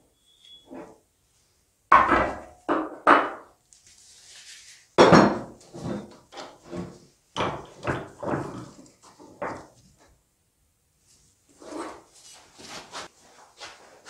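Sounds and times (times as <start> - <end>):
metal knocks and clanks: 5.0 - 9.8.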